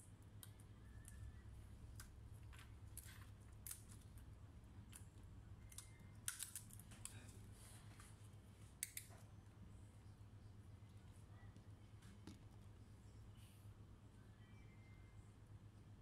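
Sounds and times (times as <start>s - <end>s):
low steady hum: 0.0s - 16.0s
plastic laptop parts clicking: 1.9s - 4.1s, 4.9s - 7.2s, 8.8s - 9.1s.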